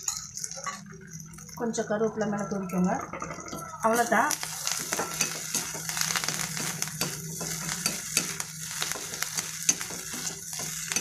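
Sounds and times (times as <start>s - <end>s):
hot oil sizzling: 0.0s - 11.0s
ladle scraping and tapping pan: 4.4s - 11.0s.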